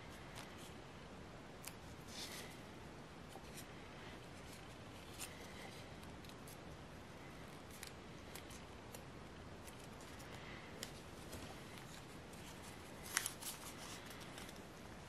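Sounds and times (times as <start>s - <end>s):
faint steady hiss: 0.0s - 15.0s
paper crinkling and crackling: 3.2s - 15.0s.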